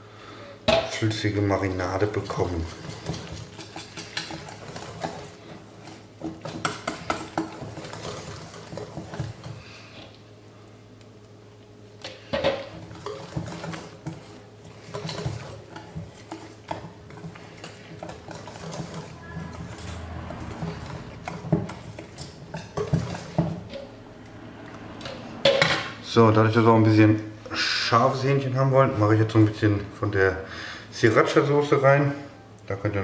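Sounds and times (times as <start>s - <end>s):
whisk clicking against metal bowl: 2.4s - 9.5s.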